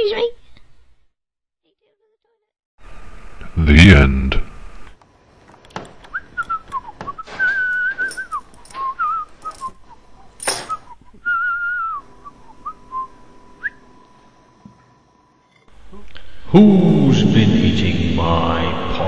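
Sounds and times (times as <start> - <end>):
person whistling a tune: 6.1 - 9.8, 10.8 - 12.0.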